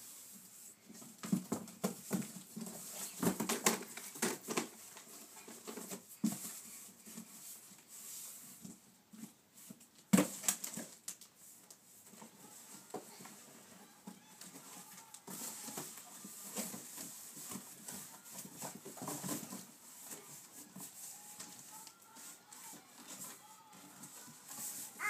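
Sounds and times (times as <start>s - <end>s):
cardboard rustling: 12.1s - 25.0s.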